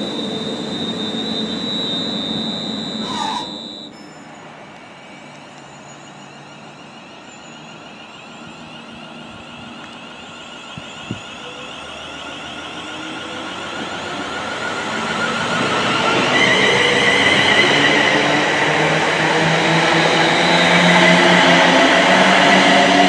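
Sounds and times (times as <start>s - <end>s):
train high whine: 0.0s - 23.0s
train wheel and rail rumble: 0.0s - 23.0s.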